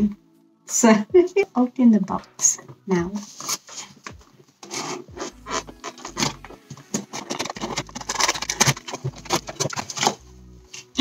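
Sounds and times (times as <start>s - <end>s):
cardboard and paper rustling: 3.2s - 10.9s.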